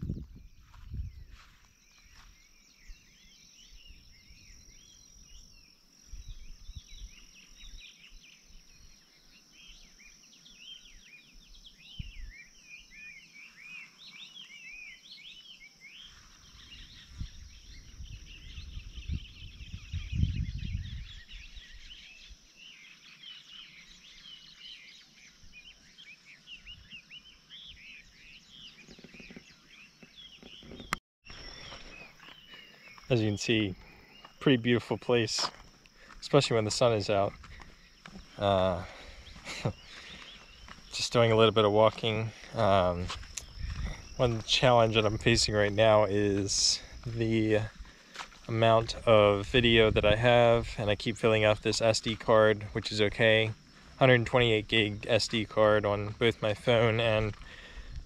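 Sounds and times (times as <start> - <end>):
deep rumble on microphone: 0.0 - 1.5, 16.4 - 22.0, 42.2 - 45.9, 48.8 - 51.7
high insect drone: 0.0 - 30.6, 31.3 - 58.0
small birds chirping: 0.0 - 58.0.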